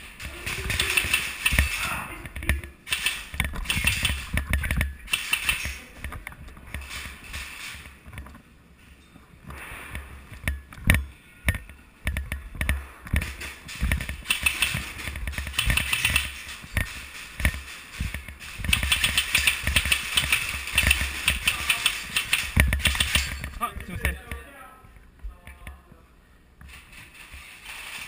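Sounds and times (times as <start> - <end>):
airsoft guns firing: 0.0 - 5.8, 12.7 - 23.4.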